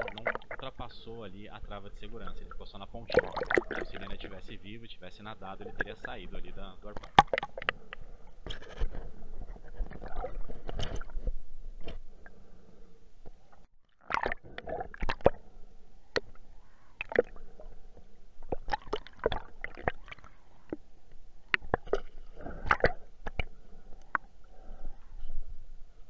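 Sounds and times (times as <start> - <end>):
muffled underwater clicks and knocks: 5.6 - 12.1.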